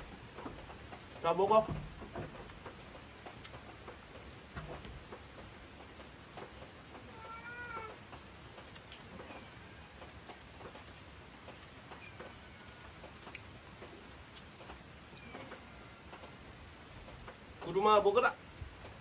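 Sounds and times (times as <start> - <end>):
cat meowing: 7.1 - 8.0.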